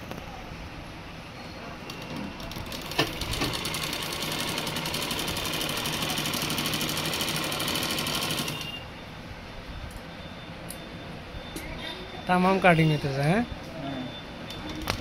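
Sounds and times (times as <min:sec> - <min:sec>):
sewing machine stitching: 0:01.9 - 0:08.8.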